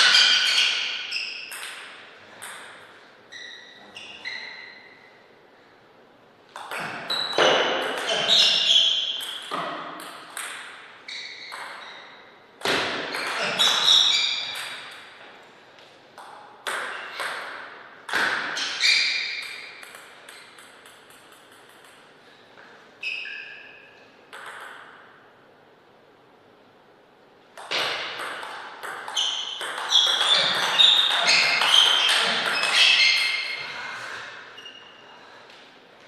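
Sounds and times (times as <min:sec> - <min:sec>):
table tennis ball clicks: 0:19.4 - 0:22.1.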